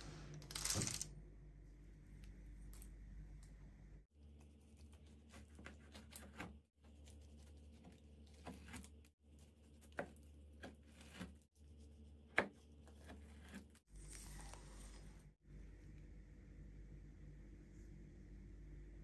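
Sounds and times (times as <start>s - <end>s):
knife slicing crunchy pie crust: 4.8s - 11.5s.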